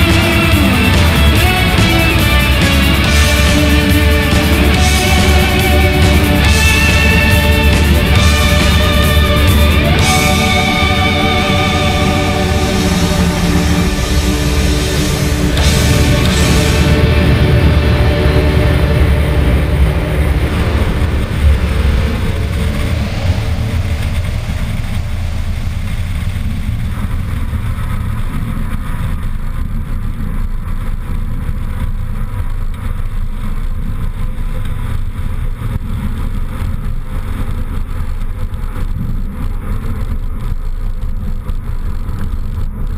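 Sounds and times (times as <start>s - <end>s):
airplane engine and propeller running: 0.0s - 42.9s
wind noise on camera: 20.2s - 42.9s.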